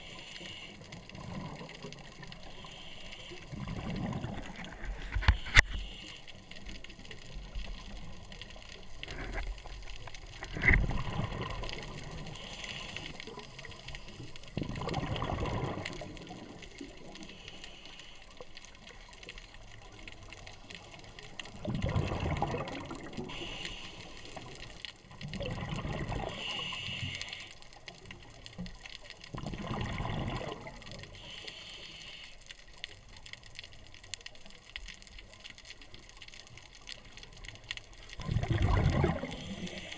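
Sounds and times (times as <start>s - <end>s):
underwater exhaled bubbles gushing: 1.0s - 2.6s, 3.5s - 5.7s, 7.2s - 13.4s, 14.4s - 17.2s, 21.3s - 23.6s, 24.4s - 26.8s, 29.2s - 31.2s, 38.0s - 39.9s
regulator hissing inhalations: 23.3s - 24.3s, 26.3s - 27.5s, 31.2s - 32.4s.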